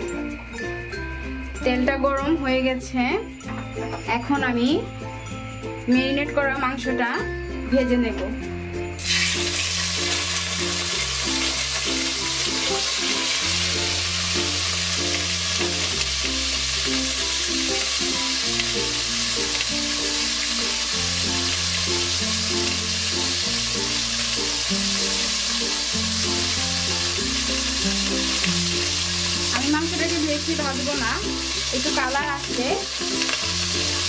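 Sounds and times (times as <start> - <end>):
background music: 0.0 - 34.0
chicken sizzling in oil: 9.0 - 34.0.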